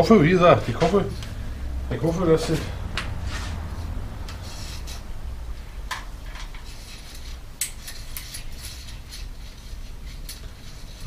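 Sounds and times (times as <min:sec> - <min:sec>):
cable scraping inside metal tube: 0:03.3 - 0:05.2, 0:06.3 - 0:11.0.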